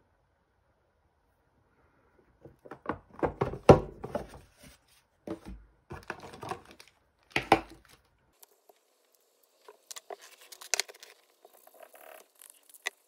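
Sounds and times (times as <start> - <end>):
box being opened and handled: 2.5 - 8.0.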